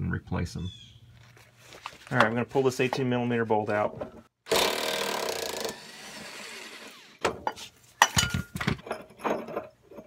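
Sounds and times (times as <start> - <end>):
power tool spinning: 4.5 - 7.2.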